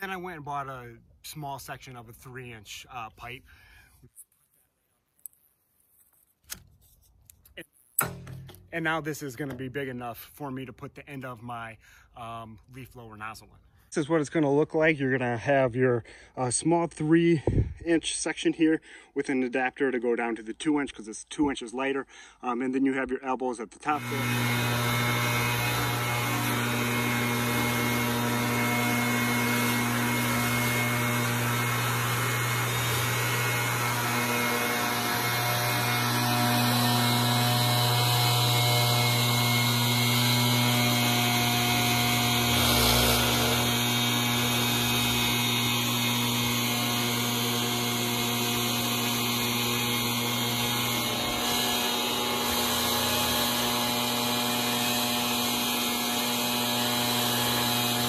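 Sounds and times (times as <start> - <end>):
leaf blower running: 24.0 - 58.0.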